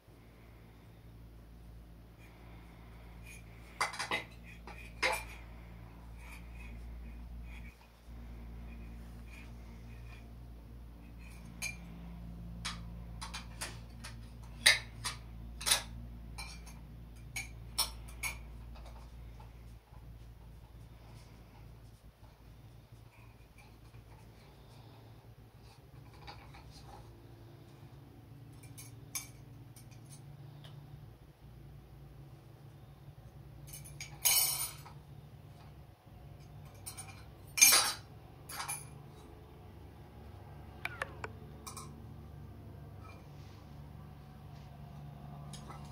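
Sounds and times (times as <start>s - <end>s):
bangles clinking against dishes: 33.6s - 35.0s.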